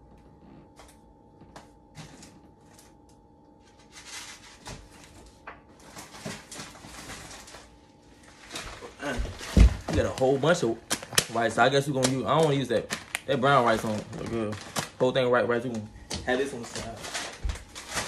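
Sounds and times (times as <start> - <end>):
food packages rustling: 3.7 - 18.0.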